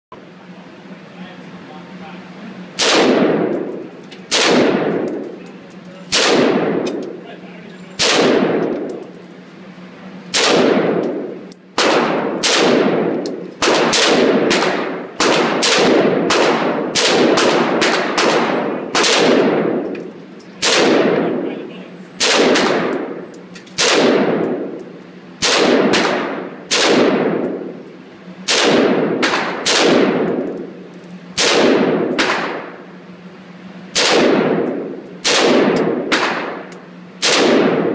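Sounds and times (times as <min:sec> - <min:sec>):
rifle shots with echo: 0:02.8 - 0:05.3, 0:06.1 - 0:06.9, 0:08.0 - 0:09.0, 0:10.3 - 0:19.8, 0:20.6 - 0:21.4, 0:22.2 - 0:23.2, 0:23.8 - 0:24.8, 0:25.4 - 0:27.7, 0:28.5 - 0:30.6, 0:31.4 - 0:32.8, 0:34.0 - 0:37.9.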